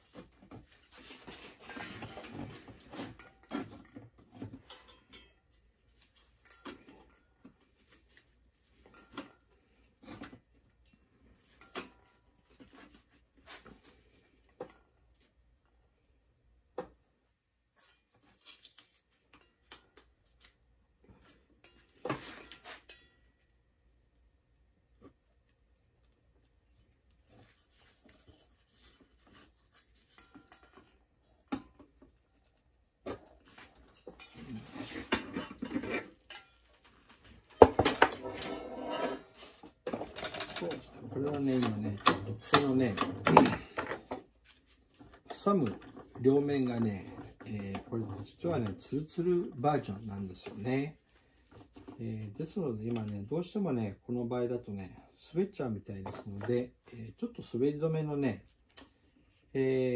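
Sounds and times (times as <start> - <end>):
metal parts clinking and scraping: 0.8 - 10.0, 27.4 - 32.6, 33.2 - 48.8
metal tools clicking and knocking: 1.8 - 7.6, 8.8 - 9.6, 29.8 - 44.3.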